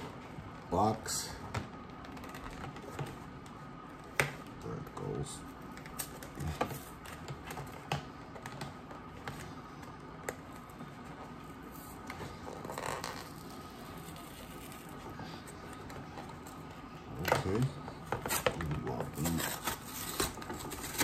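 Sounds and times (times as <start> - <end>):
cardboard rustle: 5.8 - 21.0.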